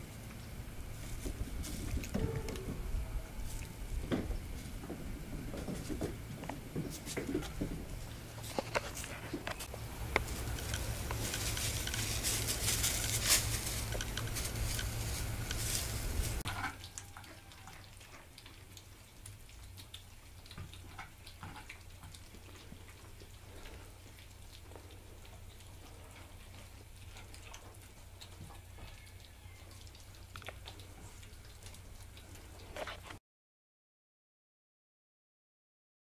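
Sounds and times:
kittens eating from plates: 0.0s - 33.2s
rustling hiss with clicks: 5.7s - 16.4s.

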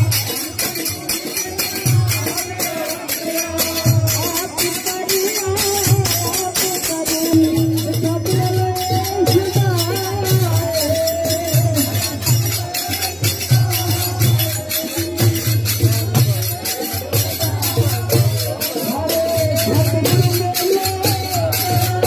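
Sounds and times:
jingling metal percussion: 0.0s - 22.0s
steady drum beat: 0.0s - 22.0s
voices singing: 0.0s - 22.0s.

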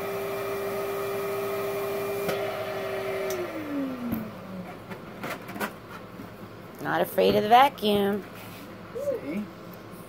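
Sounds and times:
electric blower motor humming: 0.0s - 4.6s.

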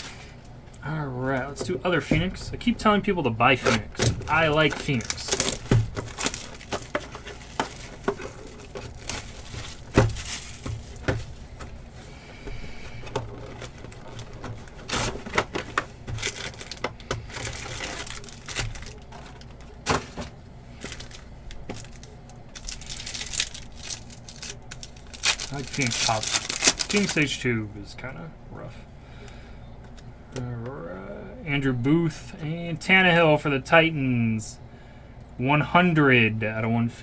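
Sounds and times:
foil pack crinkling and tearing: 3.5s - 11.5s, 12.7s - 27.4s.

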